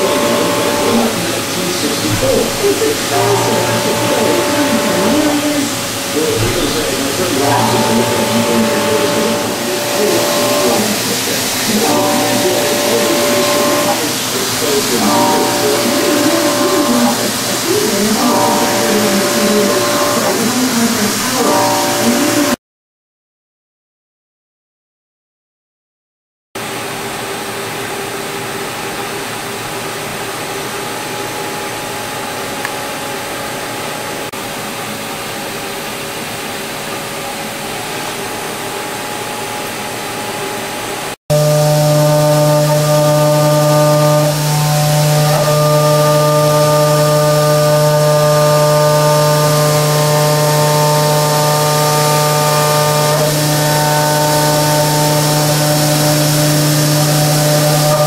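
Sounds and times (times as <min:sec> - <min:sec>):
milling machine cutting steel: 0:00.0 - 0:22.6, 0:37.0 - 0:58.0
strong steady hum: 0:00.0 - 0:22.6, 0:26.6 - 0:58.0
whining tones: 0:00.0 - 0:22.6, 0:39.0 - 0:58.0.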